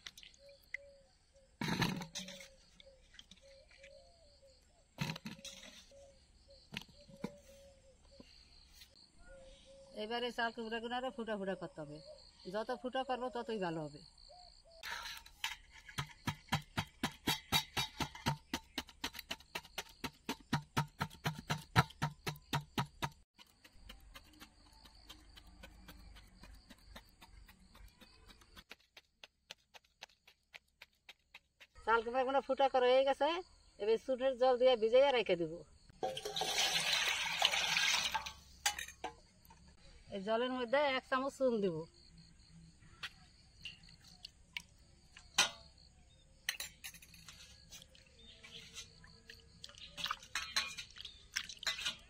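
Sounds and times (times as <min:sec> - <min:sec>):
spoon clinking in metal bowl: 0:50.3 - 0:51.0.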